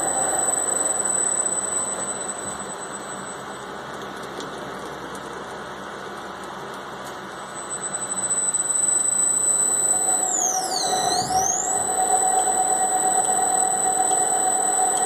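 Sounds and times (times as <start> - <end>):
washing machine motor running: 0.0 - 3.9, 4.6 - 15.0
steady whine: 0.0 - 4.3, 7.2 - 15.0
high thin swooping tone: 10.0 - 15.0.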